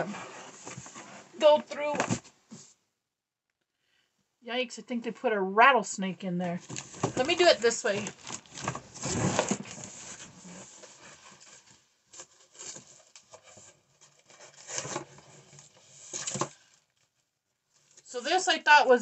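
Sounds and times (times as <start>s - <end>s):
wood scraping against cardboard: 6.6s - 16.6s.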